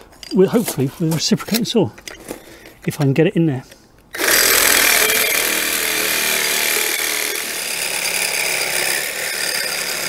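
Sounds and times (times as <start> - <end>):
reciprocating saw cutting bolt: 4.1 - 10.0.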